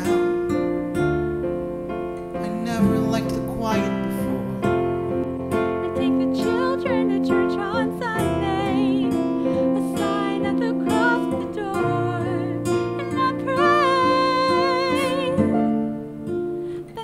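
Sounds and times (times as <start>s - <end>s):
digital piano: 0.0s - 17.0s
woman singing: 5.5s - 16.0s, 16.8s - 17.0s.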